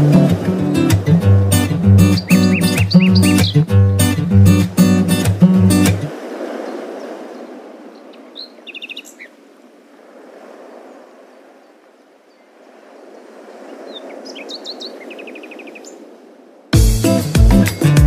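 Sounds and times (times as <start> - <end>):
birds chirping: 0.0 - 9.4, 13.2 - 16.0.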